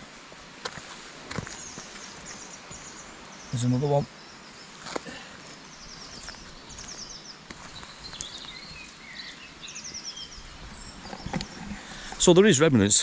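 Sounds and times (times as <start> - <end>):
footsteps on earth path: 0.0 - 3.2, 4.6 - 9.4
songbirds chirping and trilling: 0.0 - 13.0.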